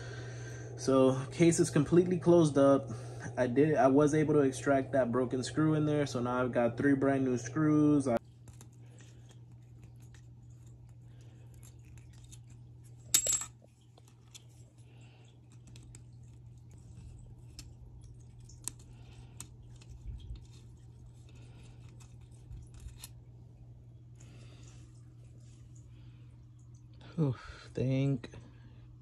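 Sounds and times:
low steady hum: 0:00.0 - 0:29.0
small metal parts clicking: 0:21.8 - 0:23.2.

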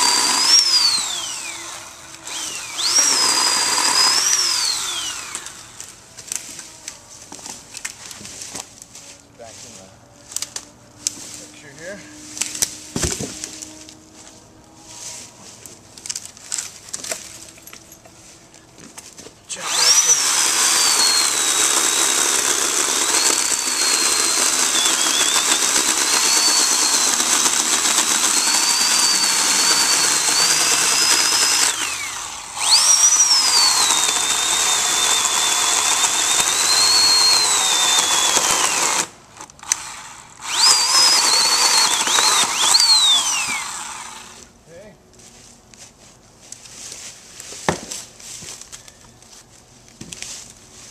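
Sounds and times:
electric chainsaw cutting log: 0:00.0 - 0:07.6, 0:10.3 - 0:17.6, 0:19.5 - 0:44.6.

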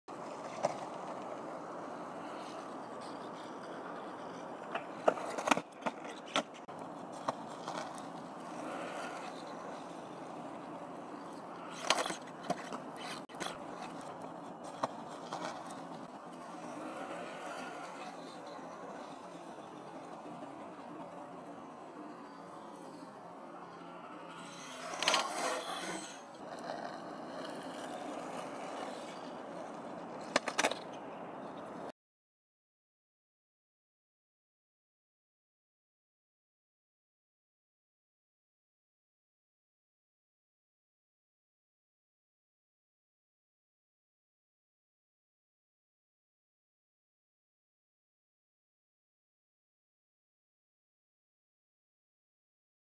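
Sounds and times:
skateboard clacks: 0:00.1 - 0:22.8, 0:23.9 - 0:31.9
longboard wheels rolling on asphalt: 0:00.1 - 0:31.9
skateboard deck clacks: 0:04.7 - 0:09.9, 0:24.8 - 0:31.0.

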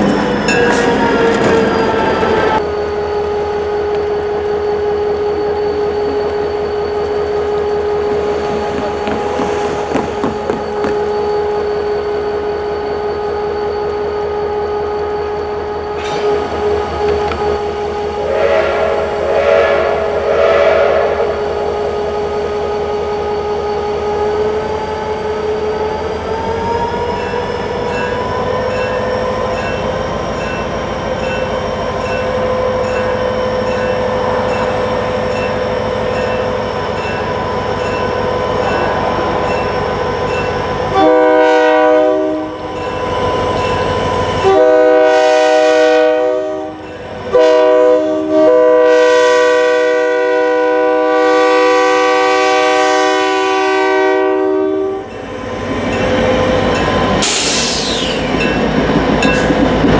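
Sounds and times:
diesel locomotive engine: 0:00.0 - 0:59.9
locomotive air horn blasts: 0:18.2 - 0:21.5, 0:40.9 - 0:42.6, 0:44.4 - 0:55.1.

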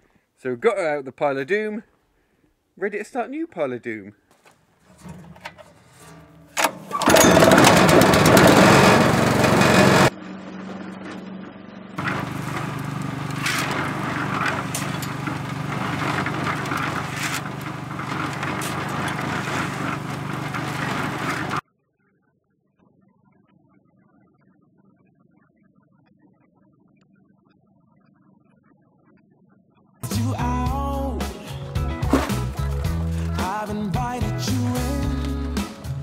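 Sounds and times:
cement mixer drum turning: 0:04.8 - 0:10.1, 0:12.0 - 0:21.6, 0:31.2 - 0:36.0
clicks and rattles: 0:04.9 - 0:10.1, 0:12.0 - 0:21.6
petrol engine running loudly: 0:07.0 - 0:11.3, 0:12.0 - 0:21.6.

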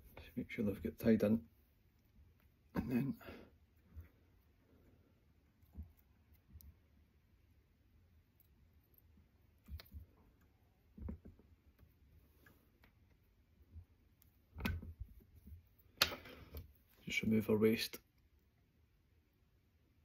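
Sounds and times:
small clicks and taps: 0:09.6 - 0:13.2.

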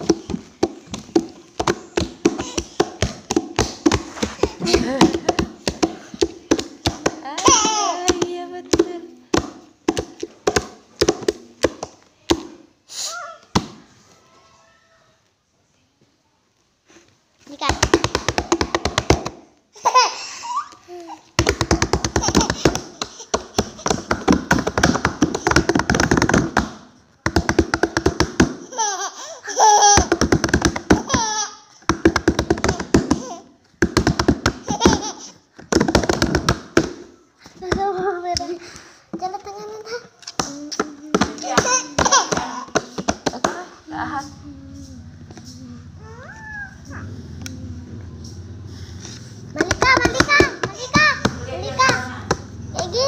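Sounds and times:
baby laughing and squealing: 0:07.3 - 0:08.1, 0:19.8 - 0:21.3, 0:28.6 - 0:30.1, 0:31.0 - 0:31.8, 0:34.6 - 0:35.5, 0:46.0 - 0:47.0
hands slapping wooden tabletop: 0:17.7 - 0:19.4, 0:21.4 - 0:28.6, 0:29.8 - 0:31.3, 0:31.9 - 0:38.5, 0:49.1 - 0:52.5.

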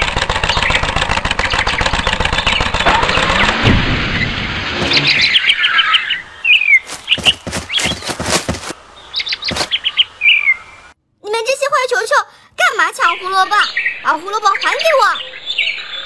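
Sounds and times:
fast mechanical rattle: 0:00.0 - 0:03.6
high chirping squeaks: 0:06.5 - 0:08.8.

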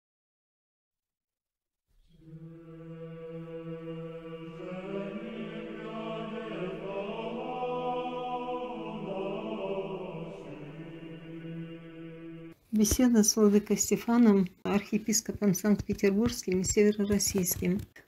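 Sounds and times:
choir chanting: 0:02.1 - 0:12.6.

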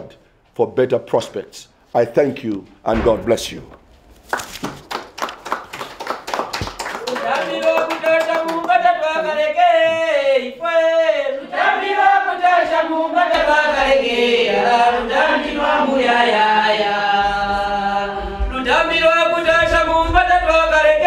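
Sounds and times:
people singing a chant: 0:07.7 - 0:21.0.

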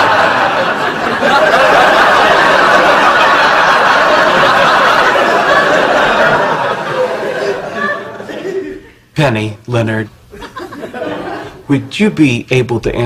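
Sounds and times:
studio audience laughing: 0:00.0 - 0:09.1, 0:10.3 - 0:11.7.

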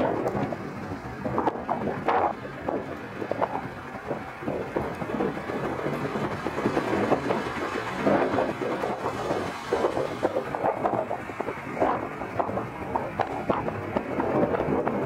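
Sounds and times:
jet engines rumbling at takeoff: 0:00.0 - 0:15.0.

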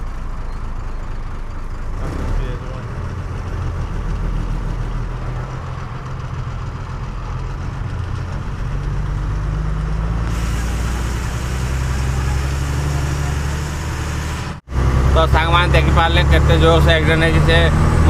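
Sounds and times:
truck diesel engine running: 0:00.0 - 0:18.0
road and wind noise hiss: 0:10.2 - 0:14.6.

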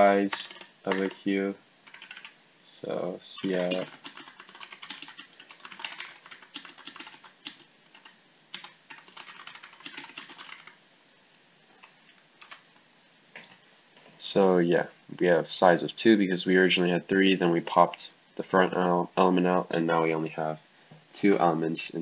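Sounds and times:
typing on computer keyboard: 0:00.3 - 0:01.3, 0:01.9 - 0:02.3, 0:03.4 - 0:10.8, 0:12.4 - 0:12.6.

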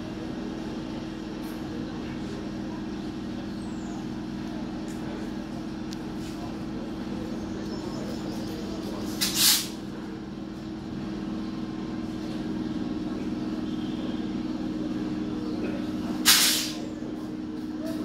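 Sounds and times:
electric train hum: 0:00.0 - 0:18.0
air brake hiss: 0:09.2 - 0:09.8, 0:16.2 - 0:16.8.

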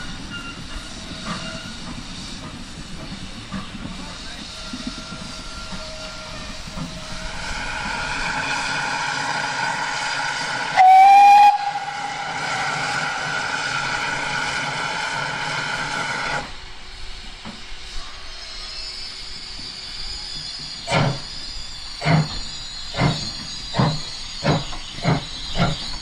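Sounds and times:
steam locomotive hissing and running: 0:00.0 - 0:26.0
steam whistle blast: 0:05.6 - 0:16.4.

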